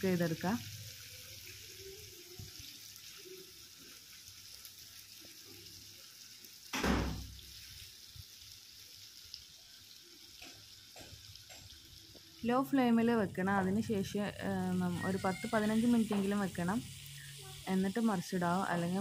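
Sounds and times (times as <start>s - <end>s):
fish frying in oil: 0.0s - 19.0s.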